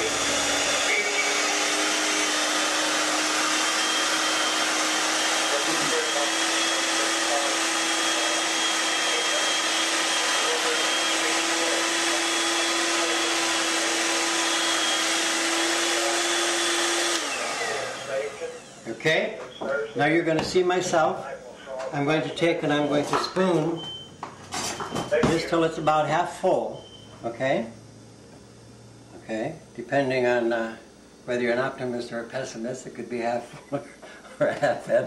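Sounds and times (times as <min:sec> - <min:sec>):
electric mixer whining: 0:00.0 - 0:19.2.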